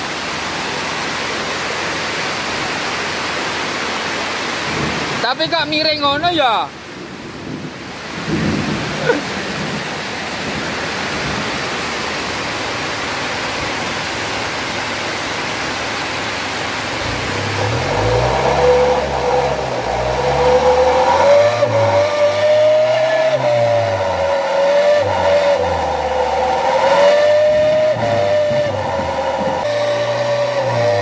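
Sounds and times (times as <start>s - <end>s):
heavy rain hissing: 0.0s - 31.0s
engine revving: 16.8s - 31.0s
thin exhaust whistle: 17.8s - 31.0s.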